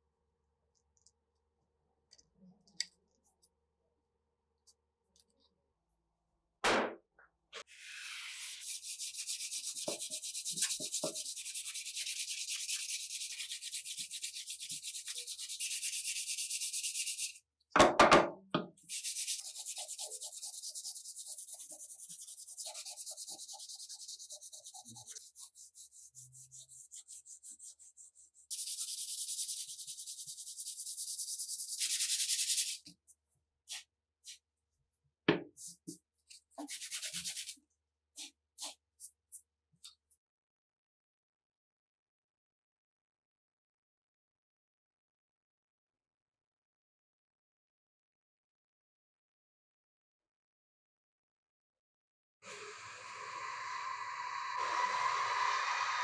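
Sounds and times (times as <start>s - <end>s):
sandpaper scraping wood: 7.7s - 17.4s, 18.9s - 32.9s, 36.6s - 37.6s.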